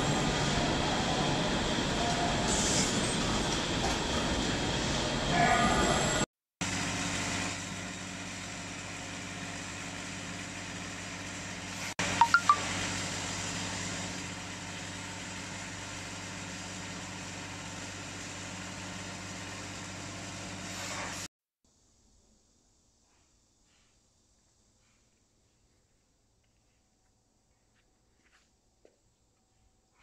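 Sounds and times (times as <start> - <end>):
machinery humming: 0.0 - 6.2
short sharp beeps: 12.2 - 12.6.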